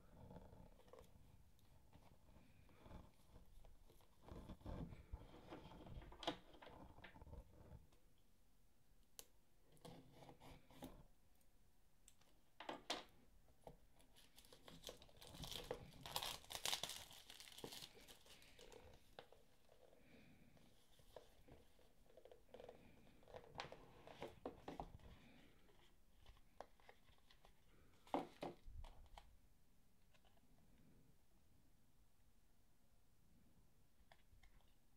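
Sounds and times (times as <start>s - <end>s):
packaging crinkling and tearing: 14.2s - 18.9s.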